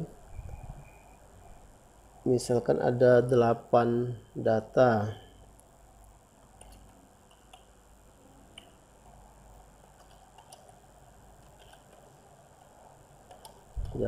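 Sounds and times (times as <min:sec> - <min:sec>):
quiet room hiss: 0:00.0 - 0:14.0
soft keyboard typing: 0:06.5 - 0:07.8, 0:09.8 - 0:14.0.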